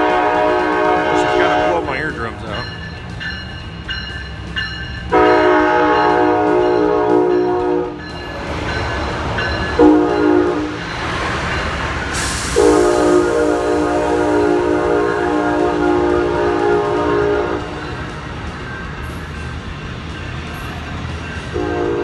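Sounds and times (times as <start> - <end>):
locomotive air horn: 0.0 - 2.4, 5.1 - 8.0, 9.8 - 10.8, 12.2 - 18.0, 21.5 - 22.0.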